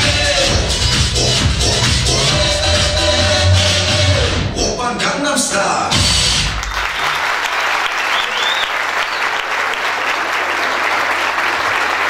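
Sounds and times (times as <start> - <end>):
dance music: 0.0 - 6.8
audience applauding: 6.5 - 12.0.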